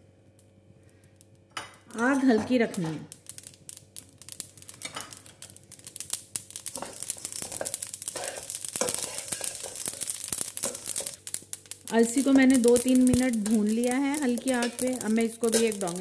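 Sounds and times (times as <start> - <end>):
seeds scraping in a metal pan: 4.3 - 16.0.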